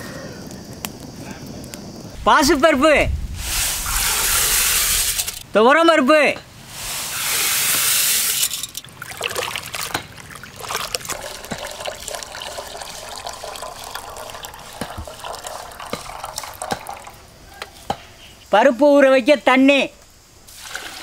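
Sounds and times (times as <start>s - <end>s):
dry lentils pouring into water: 7.2s - 17.2s
water trickling into metal pot: 8.2s - 17.3s.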